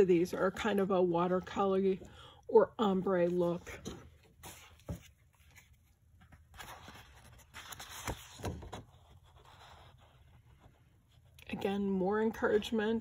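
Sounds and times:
cardstock rustling and sliding: 0:03.3 - 0:10.4.

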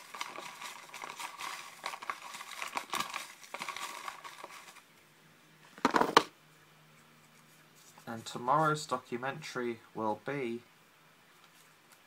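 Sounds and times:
paper unfolding crackle: 0:00.0 - 0:04.8
rummaging through paper slips: 0:00.0 - 0:04.8.

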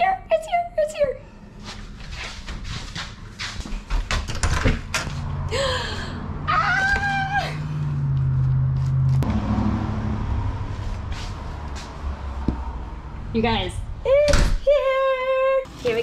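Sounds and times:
footsteps: 0:01.6 - 0:04.2, 0:10.7 - 0:12.6
front door opening: 0:03.7 - 0:05.3
vehicle engine running: 0:04.9 - 0:14.1.

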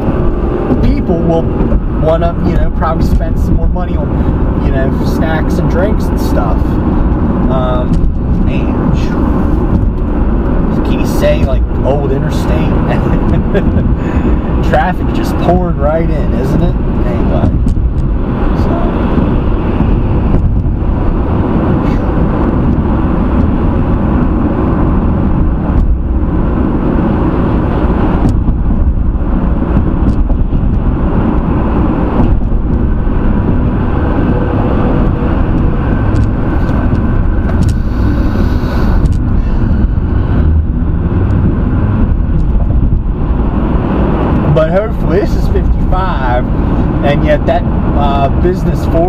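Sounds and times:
car road and tyre noise: 0:00.0 - 0:49.0.

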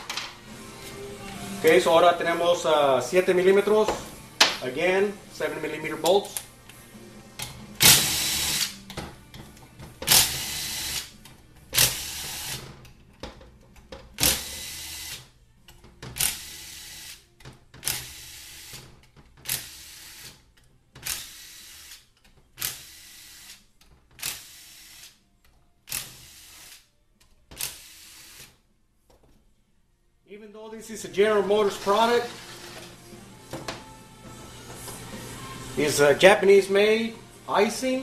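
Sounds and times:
power tool spinning bolts: 0:07.8 - 0:08.8, 0:10.0 - 0:11.1, 0:11.8 - 0:12.7, 0:14.2 - 0:15.2, 0:19.4 - 0:20.4, 0:21.0 - 0:22.0, 0:22.6 - 0:23.6, 0:25.9 - 0:26.8.

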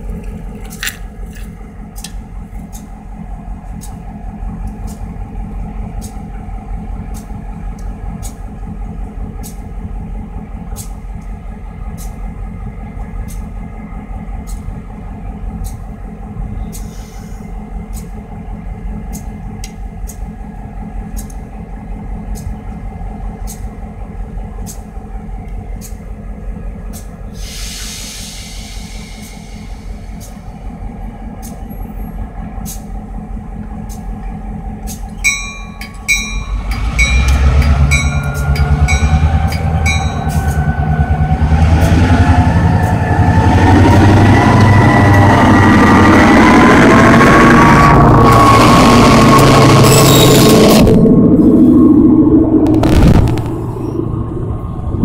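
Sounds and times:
diesel locomotive engine running: 0:00.0 - 0:55.0
air hiss: 0:27.3 - 0:30.4.

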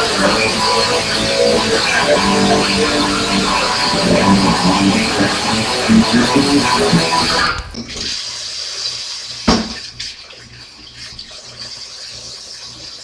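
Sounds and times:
rock guitar music: 0:00.0 - 0:07.6
sharp knock: 0:09.5 - 0:09.8
tap running: 0:09.5 - 0:09.9.

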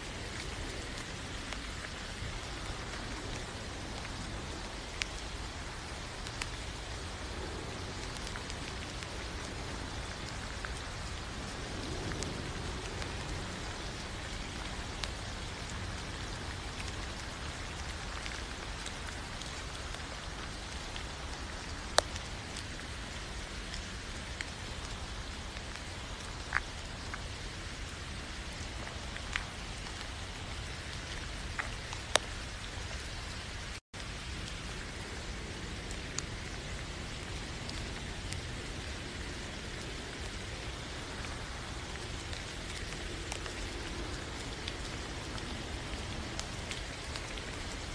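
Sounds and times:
steady rain falling: 0:00.0 - 0:47.9
single raindrops landing close: 0:11.9 - 0:35.0.

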